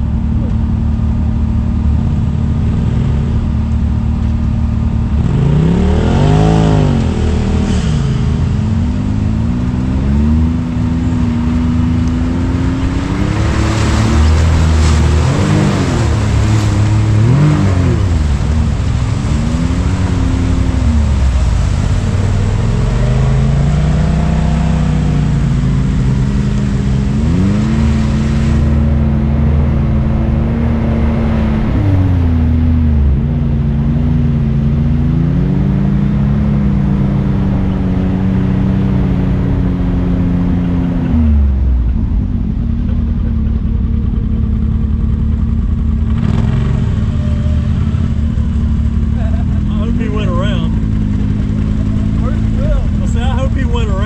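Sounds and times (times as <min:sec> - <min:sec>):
utility vehicle engine revving: 0:00.0 - 0:54.0
rushing noise: 0:05.0 - 0:44.0.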